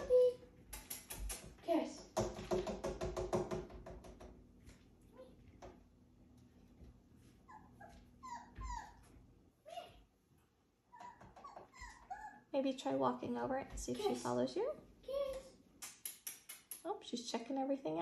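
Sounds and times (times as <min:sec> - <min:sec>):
puppy whimpering: 0:07.5 - 0:09.1, 0:10.9 - 0:12.5.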